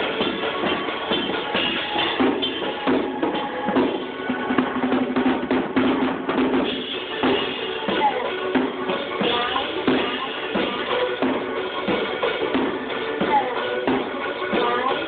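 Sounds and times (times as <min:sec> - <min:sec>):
drum kit playing: 0:00.0 - 0:15.0
pitched music underneath: 0:00.0 - 0:15.0.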